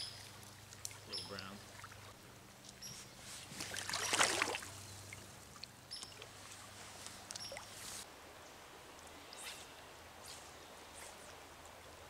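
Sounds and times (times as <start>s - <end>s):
water splashing: 0.0s - 2.2s, 3.4s - 8.0s
stream flowing: 0.0s - 12.0s.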